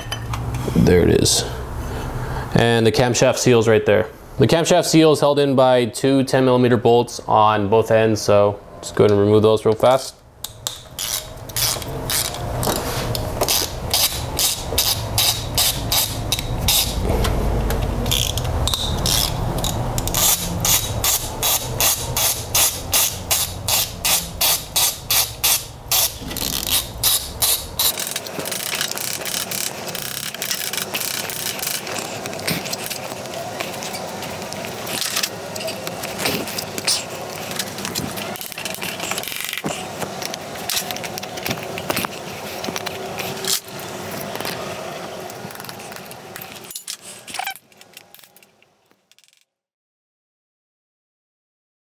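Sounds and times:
hand ratchet clicking: 10.4s - 33.2s.

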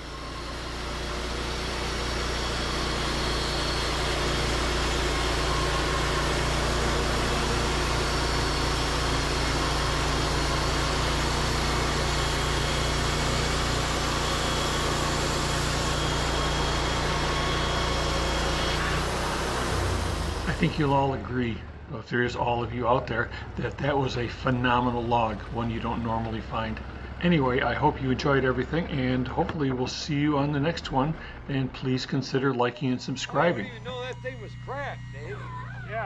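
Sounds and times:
sawmill engine running: 0.0s - 36.0s
band blade cutting log: 0.4s - 20.9s.

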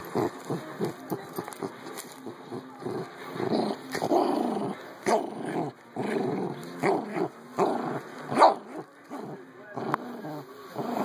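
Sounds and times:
dogs growling in play: 0.0s - 11.0s
dogs barking sharply: 8.3s - 8.8s.

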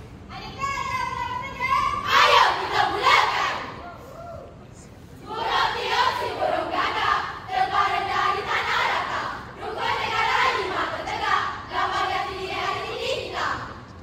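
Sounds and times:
girls chanting in unison: 1.9s - 3.8s, 5.2s - 13.8s.

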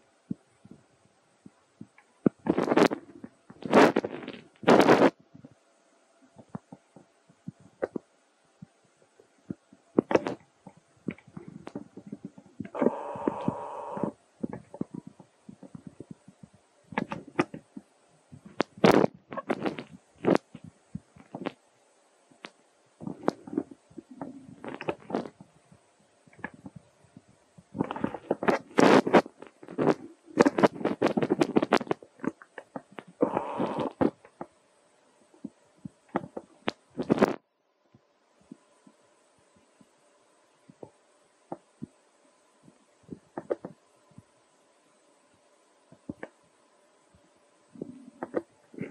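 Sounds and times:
soft taps and rustles: 6.4s - 12.8s, 14.4s - 21.6s.

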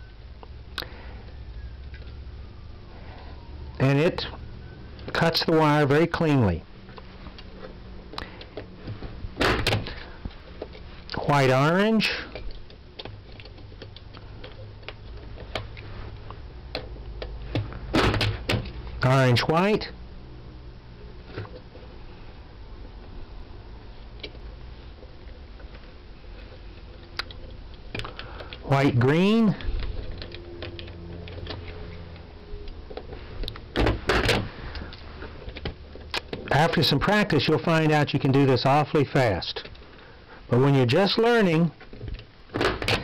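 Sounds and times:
low steady hum: 0.0s - 43.0s
wires clicking into contacts: 26.5s - 36.6s.

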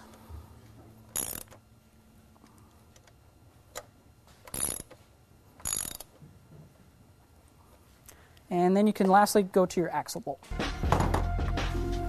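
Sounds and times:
ratchet wrench clicking: 1.1s - 1.6s, 4.5s - 5.0s, 5.6s - 6.2s.

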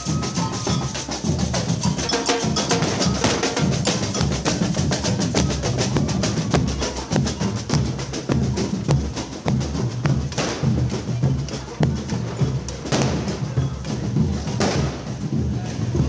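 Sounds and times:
snare drum strikes: 9.5s - 10.9s, 11.5s - 13.4s, 14.6s - 15.1s.

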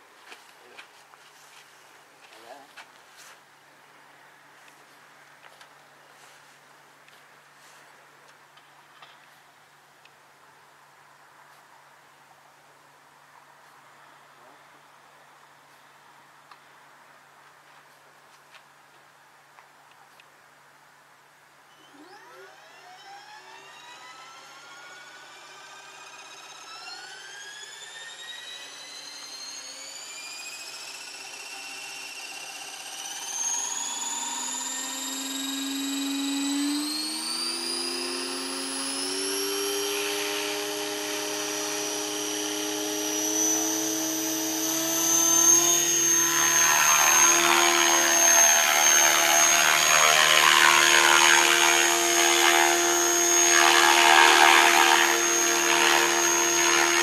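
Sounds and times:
model helicopter motor whine: 21.7s - 57.0s
helicopter rotor noise: 22.0s - 57.0s.

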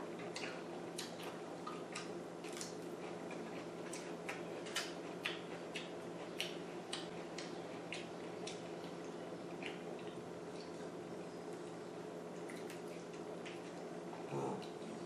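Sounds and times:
person chewing: 0.2s - 11.0s.

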